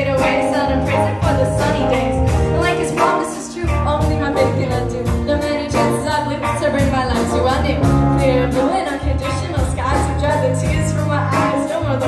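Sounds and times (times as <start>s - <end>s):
live funk band playing: 0.0s - 12.0s
woman singing: 0.0s - 12.0s.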